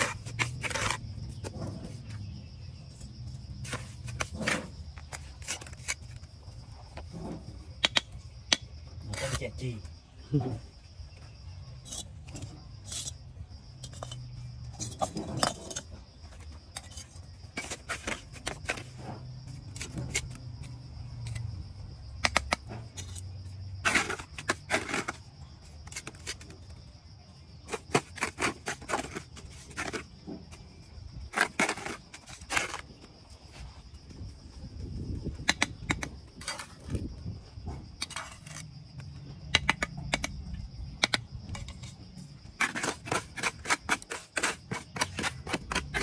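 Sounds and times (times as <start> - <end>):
trowel scraping mortar: 0.0 - 2.3, 3.0 - 7.4, 9.0 - 9.5, 11.8 - 16.0, 16.7 - 21.4, 22.2 - 26.8, 27.7 - 30.4, 31.3 - 33.1, 38.0 - 38.7, 41.6 - 46.0
trowel clinking and tapping bricks: 7.8 - 9.3, 22.2 - 23.3, 38.0 - 40.4.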